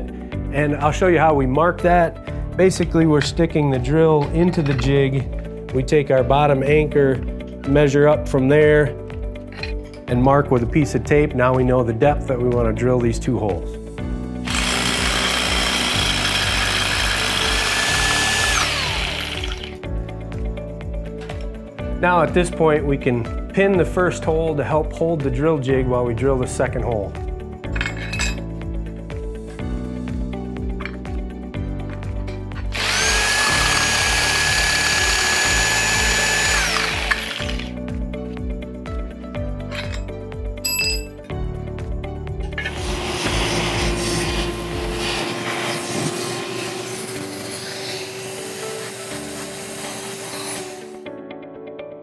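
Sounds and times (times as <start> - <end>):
rotary hammer drilling into concrete: 14.4 - 19.8, 32.7 - 37.8, 42.6 - 51.0.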